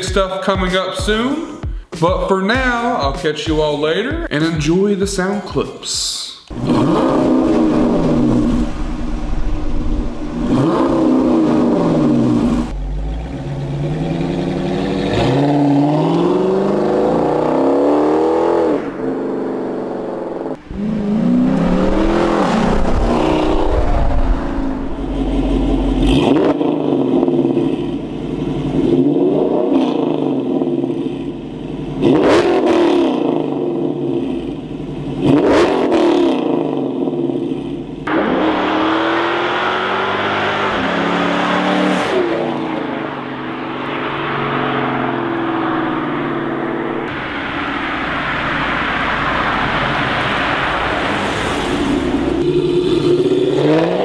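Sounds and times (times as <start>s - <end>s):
sharp exhaust cracks: 6.5s - 29.1s
engine exhaust revving: 6.5s - 54.0s.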